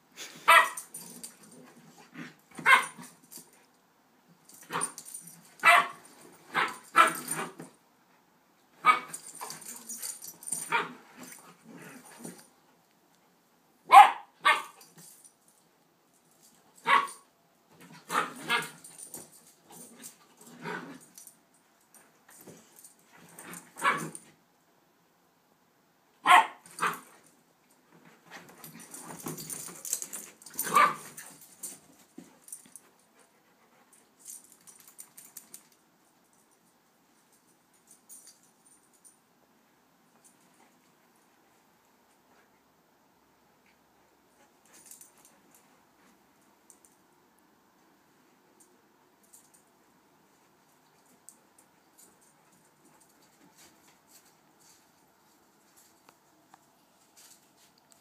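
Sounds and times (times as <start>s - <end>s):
dogs barking sharply: 0.4s - 0.9s, 2.6s - 3.1s, 5.6s - 7.6s, 8.8s - 9.2s, 13.9s - 14.8s, 16.8s - 17.2s, 23.8s - 24.2s, 26.2s - 27.1s, 30.6s - 31.1s.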